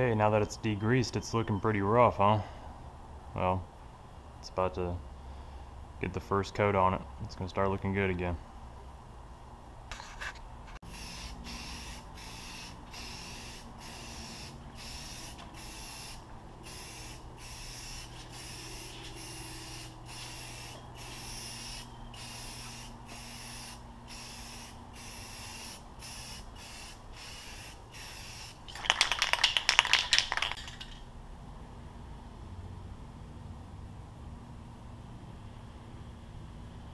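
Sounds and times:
spray paint can hissing: 10.9 - 30.7
spray can rattling: 10.9 - 31.0.

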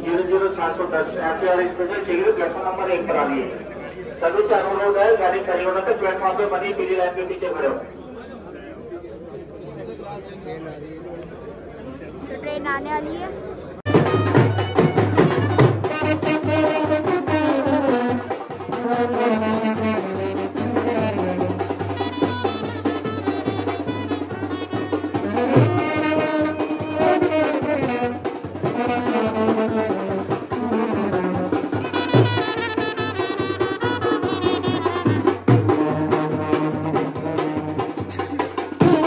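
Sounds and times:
drum beats: 13.8 - 39.0
brass band playing: 13.9 - 39.0.

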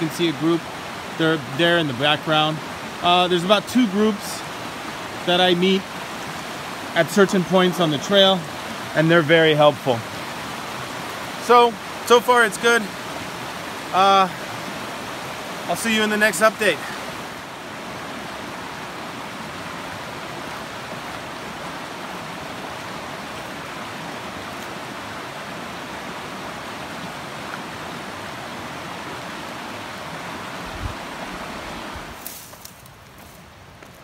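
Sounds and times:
river flowing over rocks: 0.0 - 34.0.

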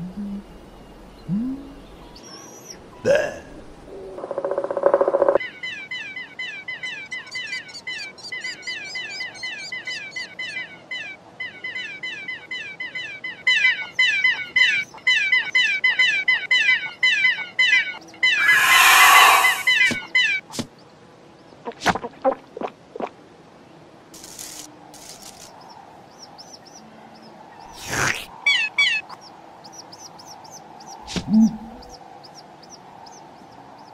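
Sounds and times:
cartoon baby creatures cheeping: 18.3 - 19.8.

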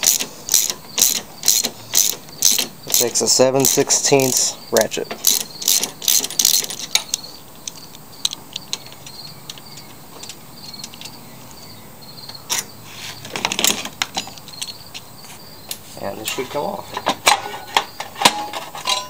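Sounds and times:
socket ratchet clicking: 0.0 - 4.4, 5.1 - 11.2
handling clatter: 17.0 - 19.0.

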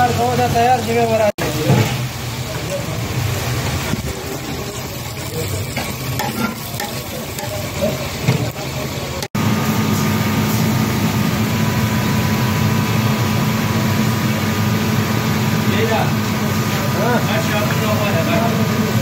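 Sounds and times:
fish deep-frying in oil: 0.0 - 19.0
metal skimmer scraping a wok: 3.8 - 8.2.

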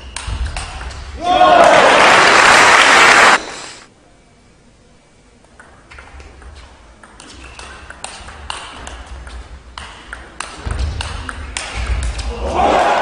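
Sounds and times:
crowd cheering: 1.2 - 3.5, 12.3 - 13.0.

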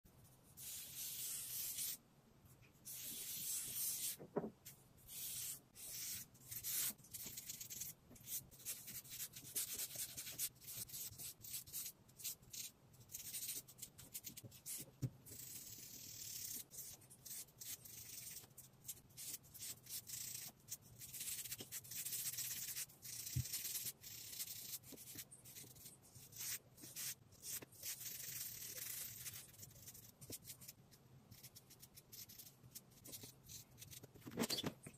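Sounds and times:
pen scratching on paper: 0.6 - 2.0, 2.9 - 4.2, 5.1 - 18.5.

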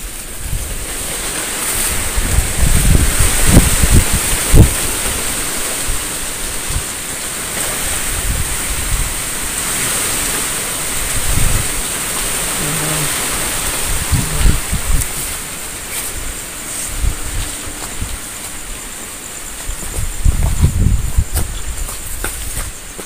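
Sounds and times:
rushing hiss: 0.0 - 23.0
high-pitched insect drone: 12.4 - 23.0.

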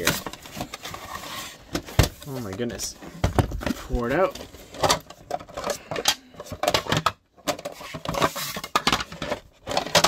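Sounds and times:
cardboard scraping: 0.0 - 4.9
plastic boxes clattering: 0.0 - 10.0.

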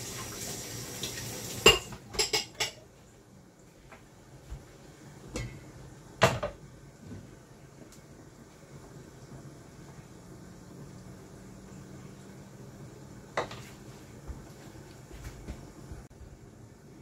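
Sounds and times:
metal kitchenware clinking: 1.6 - 2.8.

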